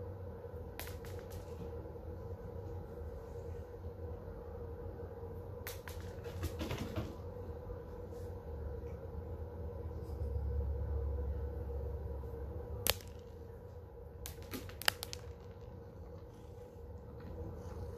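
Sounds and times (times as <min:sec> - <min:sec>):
low room hum: 0:00.0 - 0:17.9
cat food clicking on tile floor: 0:05.7 - 0:06.7, 0:14.3 - 0:16.5.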